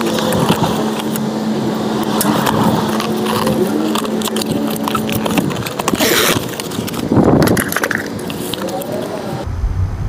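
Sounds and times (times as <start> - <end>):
steady low hum: 0.0 - 10.0
knife slicing packing tape: 2.1 - 9.0.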